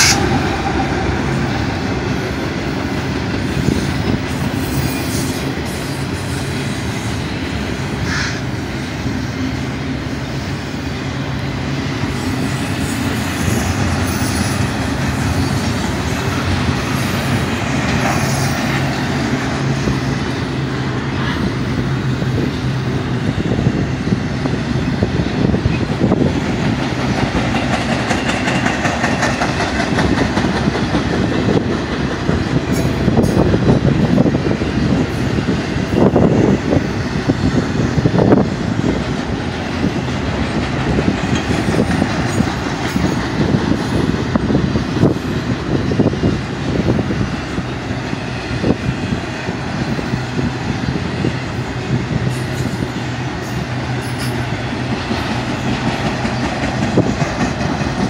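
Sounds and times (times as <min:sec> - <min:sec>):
freight train rumble: 0:00.0 - 0:58.0
wheels clacking over rail joints: 0:11.2 - 0:23.1, 0:24.8 - 0:58.0.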